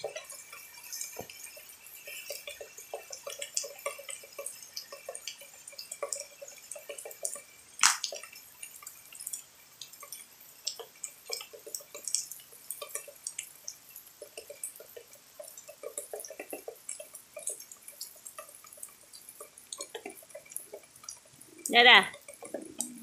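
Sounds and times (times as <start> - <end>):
rain drops plinking: 0.0 - 23.0.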